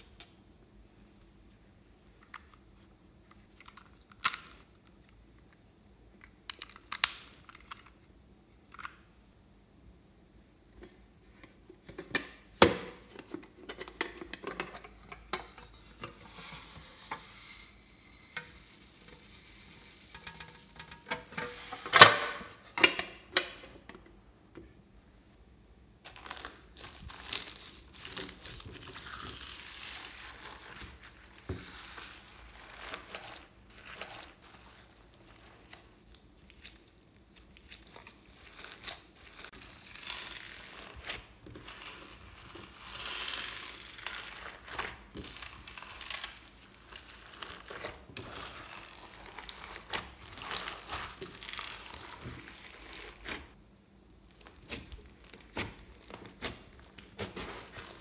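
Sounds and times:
foam beads pouring: 17.3 - 21.1, 26.1 - 35.7, 38.3 - 53.2
hands squishing slime: 26.1 - 53.6, 54.3 - 58.0.

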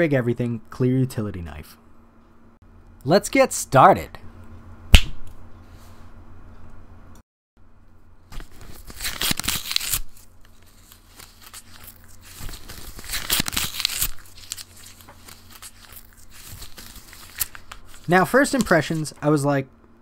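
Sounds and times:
paper mailer crinkling and tearing: 8.3 - 19.2.

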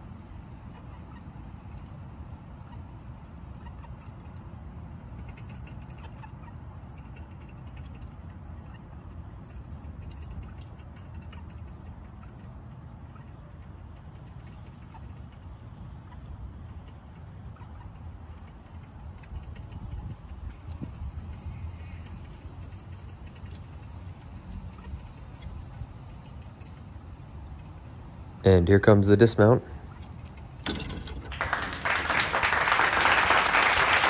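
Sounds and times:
light clicks and ticks: 3.2 - 28.0.

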